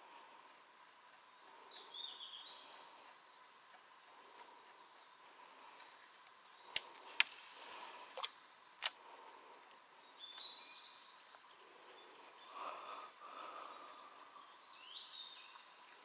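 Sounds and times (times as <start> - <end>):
birds: 0.0 - 16.0
insects: 0.0 - 16.0
sharp clicks: 6.2 - 9.0.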